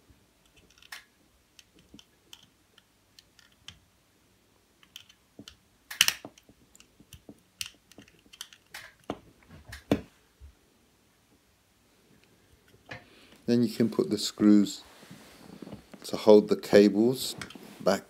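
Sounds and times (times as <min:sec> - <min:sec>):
screwdriver and plastic clicks: 0:00.4 - 0:03.8, 0:04.8 - 0:09.9.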